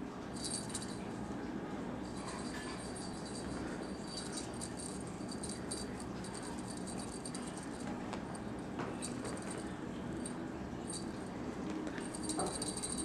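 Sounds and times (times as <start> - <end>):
small jingle bell jingling: 0.4 - 1.1, 2.0 - 8.4, 9.0 - 11.3, 12.0 - 13.0.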